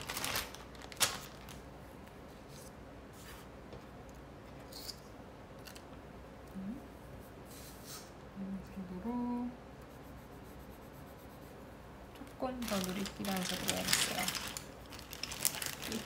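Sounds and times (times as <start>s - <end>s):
colouring strokes on paper: 9.8s - 13.8s.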